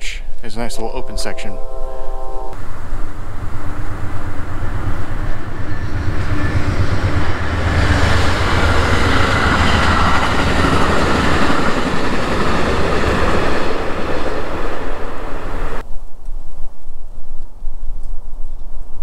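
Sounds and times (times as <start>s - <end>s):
rushing noise: 0.6s - 15.8s
loud steady rumble: 2.6s - 15.8s.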